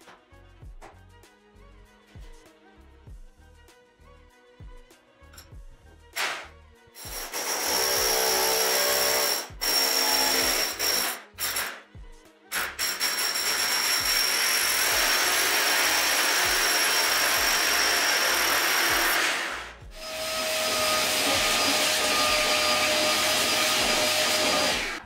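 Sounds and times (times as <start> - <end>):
hammer drill boring into wall: 7.0 - 11.8, 12.5 - 25.0.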